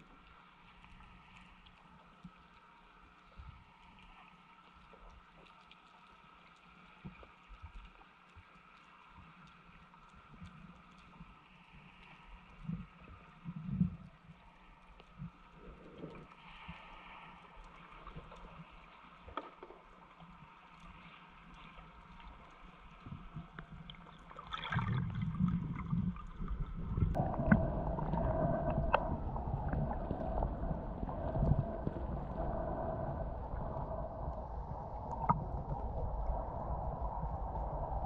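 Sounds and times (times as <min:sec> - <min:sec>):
faint underwater hiss: 0:00.0 - 0:38.0
exhaled bubbles rushing: 0:24.4 - 0:38.0
low rumble: 0:24.9 - 0:38.0
steady hum: 0:27.0 - 0:38.0.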